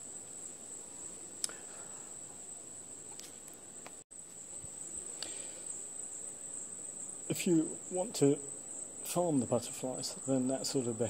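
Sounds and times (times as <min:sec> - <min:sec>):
insects singing high drone: 0:00.0 - 0:11.0.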